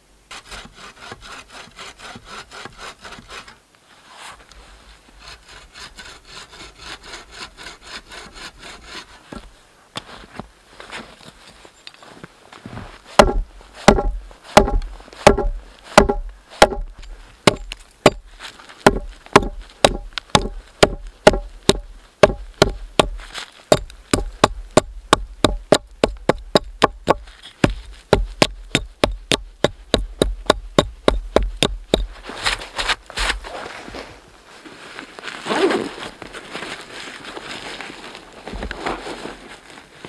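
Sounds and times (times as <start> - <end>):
hatchet chopping log: 13.2 - 32.1.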